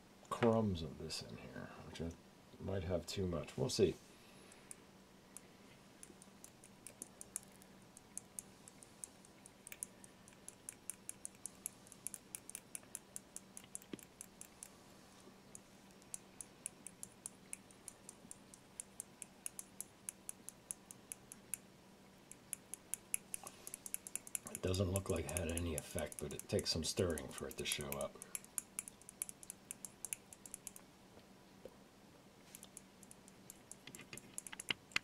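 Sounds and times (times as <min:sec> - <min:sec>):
glass rod ticking against beaker: 0:06.0 - 0:14.7, 0:22.3 - 0:30.8.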